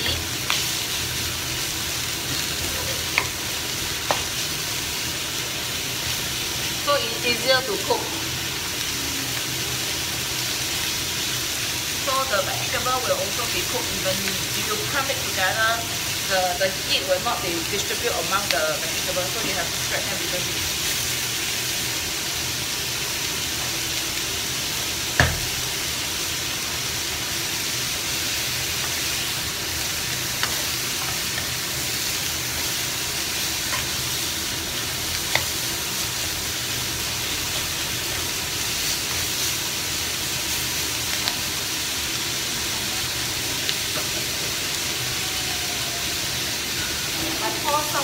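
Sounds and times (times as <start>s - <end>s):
food sizzling in a wok: 0.0s - 48.0s.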